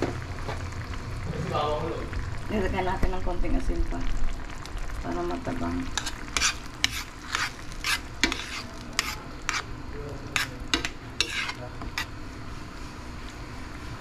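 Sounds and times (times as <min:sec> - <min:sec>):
sauce bubbling: 0:00.0 - 0:12.5
spoon scraping a pan: 0:05.9 - 0:09.7, 0:10.3 - 0:12.1.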